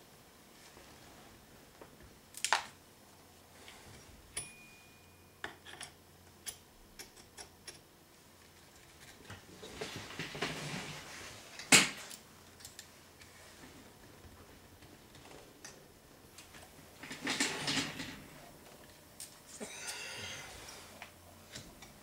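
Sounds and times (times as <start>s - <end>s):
rustling scrape: 9.6s - 11.5s.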